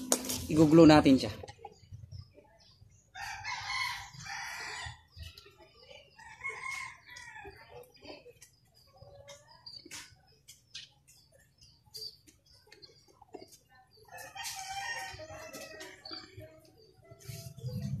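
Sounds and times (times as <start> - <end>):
chickens clucking: 0.0 - 18.0
rooster crowing: 3.2 - 5.0.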